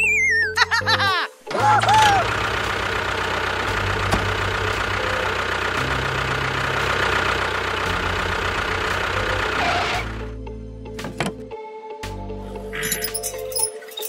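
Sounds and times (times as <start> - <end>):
tractor engine chugging: 1.8 - 10.3.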